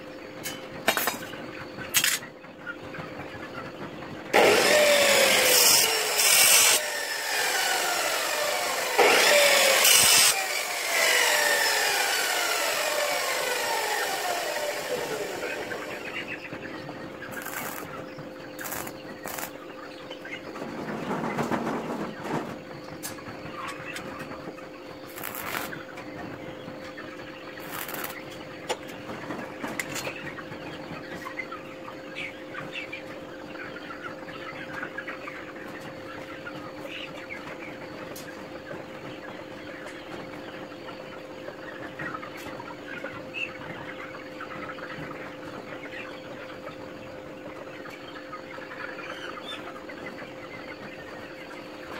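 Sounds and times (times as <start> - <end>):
chickens clucking: 0.0 - 51.9
steady hum: 3.8 - 21.2, 22.1 - 29.5
arc welding crackle: 5.2 - 6.8, 9.8 - 10.5, 17.3 - 17.9, 18.6 - 19.6, 25.1 - 25.8, 27.6 - 28.2.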